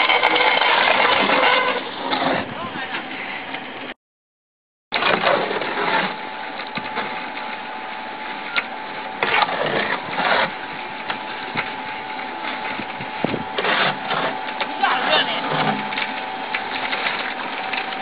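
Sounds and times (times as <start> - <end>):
scraping noise: 0.0 - 2.6.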